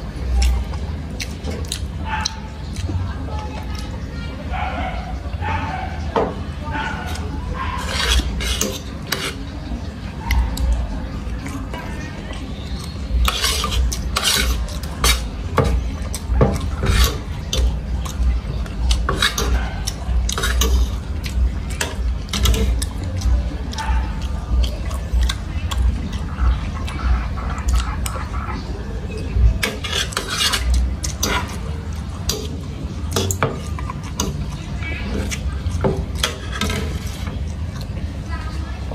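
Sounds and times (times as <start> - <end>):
cutlery scraping on a plate: 6.0 - 9.6, 12.3 - 24.3, 29.2 - 37.9.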